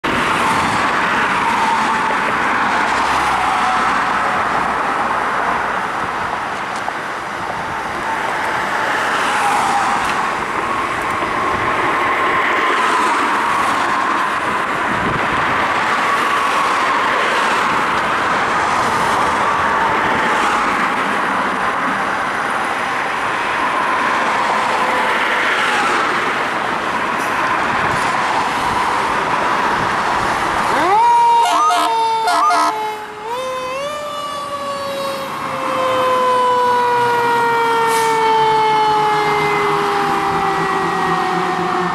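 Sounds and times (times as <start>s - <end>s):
cars passing: 0.0s - 41.9s.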